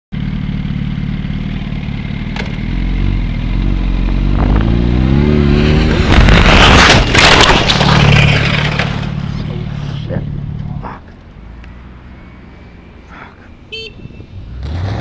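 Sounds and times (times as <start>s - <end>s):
motorcycle engine accelerating: 0.2s - 10.8s
motorcycle scraping along asphalt: 0.7s - 15.0s.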